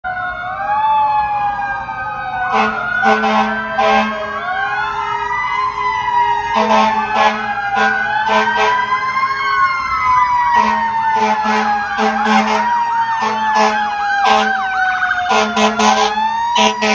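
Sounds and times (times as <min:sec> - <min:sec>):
emergency vehicle sirens wailing: 0:00.0 - 0:16.9
short horn blasts: 0:02.5 - 0:04.2, 0:10.6 - 0:14.6, 0:15.3 - 0:16.9.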